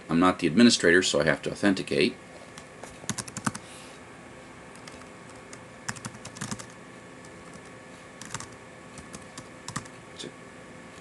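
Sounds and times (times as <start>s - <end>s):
typing on keyboard: 3.1s - 3.6s, 5.9s - 6.7s, 7.5s - 9.9s.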